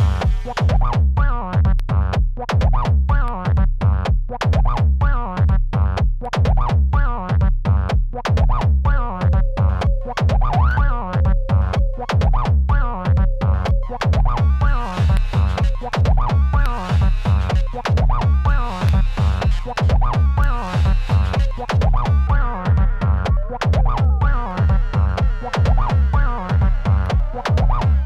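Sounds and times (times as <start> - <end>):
kick-drum beat: 0.0 - 28.0
noise percussion: 0.0 - 28.0
wavering acid bass line: 0.0 - 28.0.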